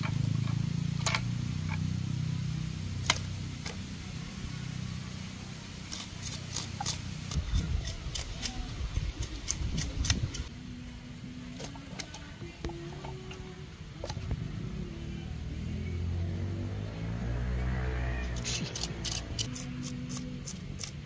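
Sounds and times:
knife scraping fish scales: 5.8s - 10.5s, 18.2s - 21.0s.

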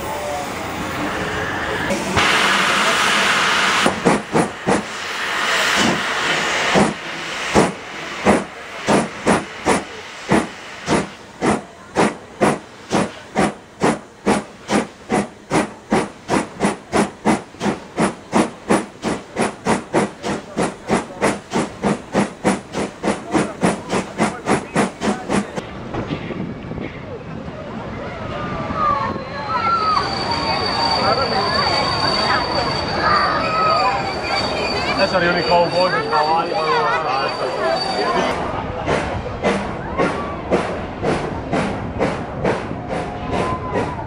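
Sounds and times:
steam hissing: 0.0s - 25.6s
steam locomotive exhaust beats: 0.0s - 27.0s, 37.3s - 44.0s.

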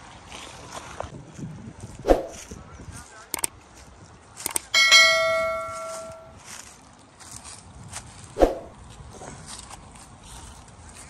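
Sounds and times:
notification bell ding: 4.8s - 6.4s.

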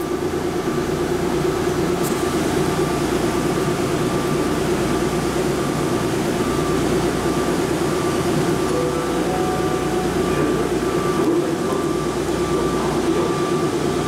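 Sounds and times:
faint steady whine: 0.0s - 14.0s
low drone: 8.6s - 13.4s.

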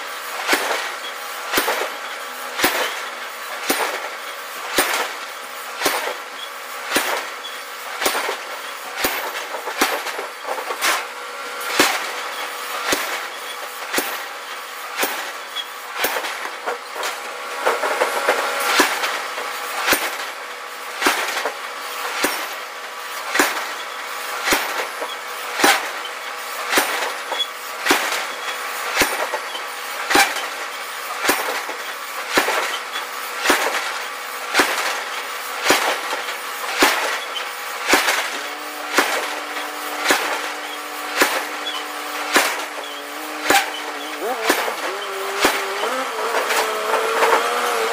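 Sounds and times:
constant machine hum: 0.0s - 47.9s
forging hammer striking iron: 6.9s - 8.4s, 40.0s - 40.5s, 41.2s - 47.5s.

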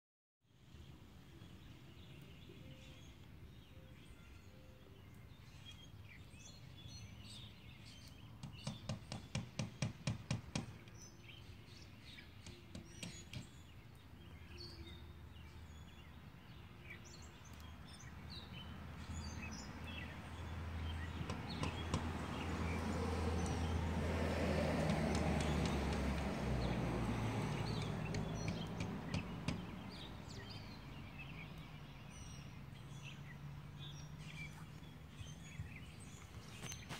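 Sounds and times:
small birds chirping: 0.5s - 36.9s
sharp taps: 21.2s - 22.1s, 24.8s - 26.3s, 27.7s - 29.7s.

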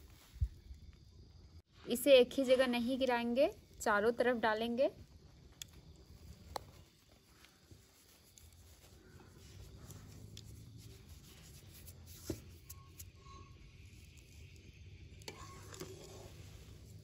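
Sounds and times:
milk bubbling in a pan: 13.5s - 17.0s.

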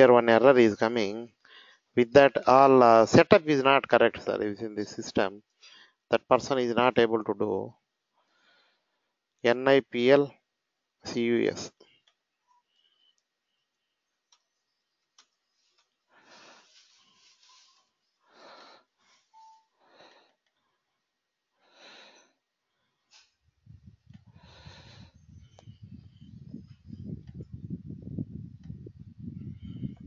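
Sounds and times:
person breathing softly: 1.4s - 1.9s, 5.6s - 6.0s, 8.2s - 9.2s, 16.1s - 20.9s, 21.6s - 23.4s, 24.2s - 26.2s
faint clicks: 12.8s - 16.0s.

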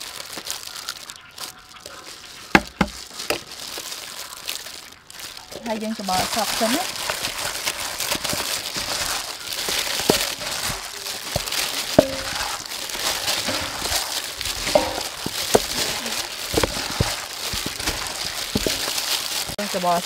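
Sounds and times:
plastic gloves crinkling: 0.0s - 20.0s.

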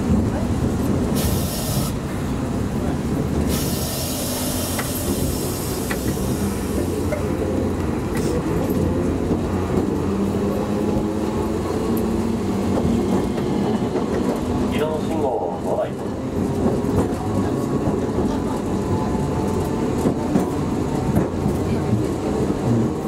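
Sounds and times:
streetcar wheels and motor rumbling: 0.0s - 23.0s
wheels hissing on curve: 1.1s - 2.1s, 3.4s - 7.4s.

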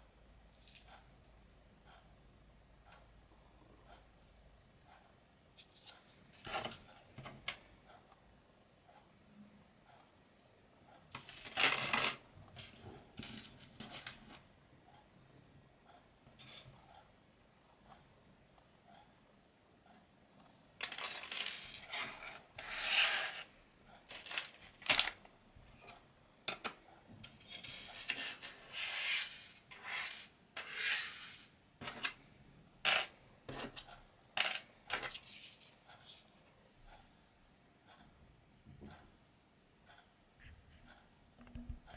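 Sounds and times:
parts rustling on tabletop: 5.6s - 7.4s, 11.1s - 14.4s, 20.8s - 23.5s, 24.1s - 32.2s, 32.9s - 36.4s.

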